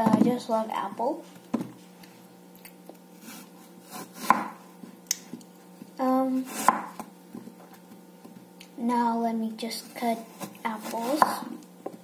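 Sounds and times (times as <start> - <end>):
knife slicing apple: 3.2 - 5.4, 6.3 - 7.1, 9.7 - 12.0.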